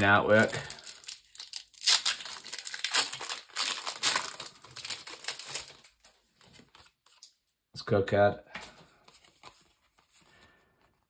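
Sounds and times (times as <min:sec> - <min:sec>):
foil wrapper tearing and crinkling: 0:00.0 - 0:06.1.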